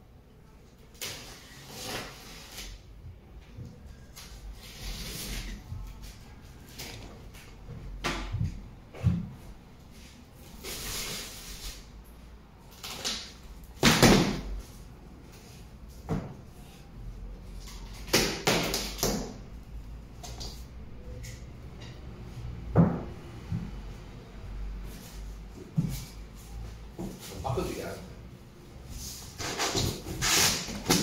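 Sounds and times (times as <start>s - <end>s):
cardboard box ripping and scraping: 29.3s - 31.0s.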